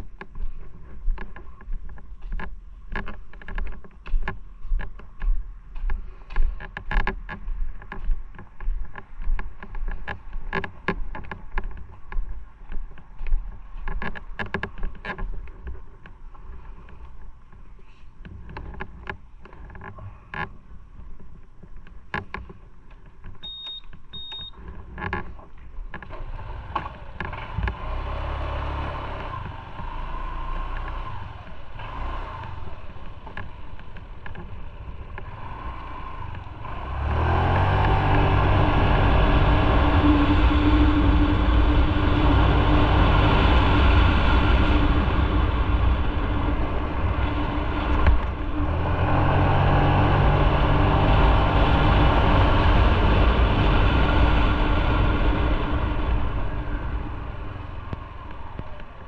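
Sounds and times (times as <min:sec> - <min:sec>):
motorcycle accelerating: 0:25.9 - 0:59.0.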